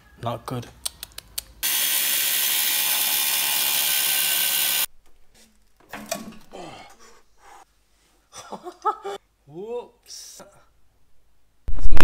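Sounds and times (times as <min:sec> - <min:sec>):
angle grinder cutting steel: 0:01.6 - 0:04.9.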